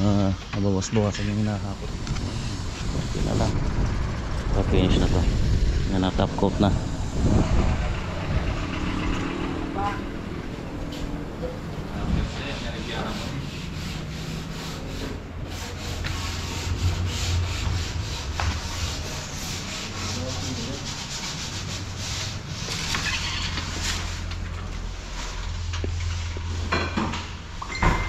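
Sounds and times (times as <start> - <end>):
wood being sanded: 12.3 - 22.9.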